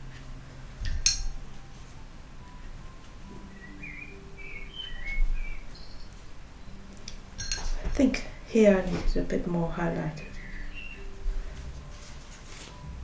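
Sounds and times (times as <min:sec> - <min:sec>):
bird chirping: 0:03.3 - 0:07.5, 0:10.1 - 0:11.2.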